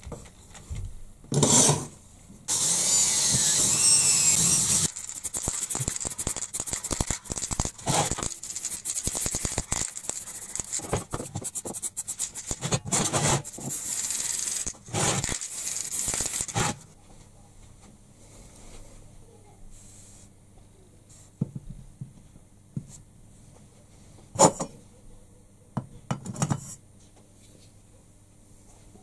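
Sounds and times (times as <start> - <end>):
cordless drill running: 2.5 - 9.8
spray can hissing: 2.6 - 12.7, 13.4 - 16.6
spray can rattling: 4.2 - 12.8, 13.4 - 16.7.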